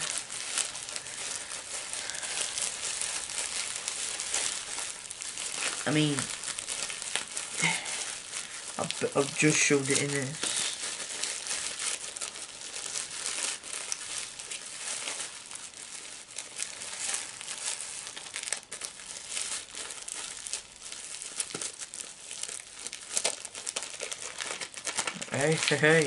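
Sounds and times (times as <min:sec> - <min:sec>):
plastic crinkling: 0:00.0 - 0:26.0.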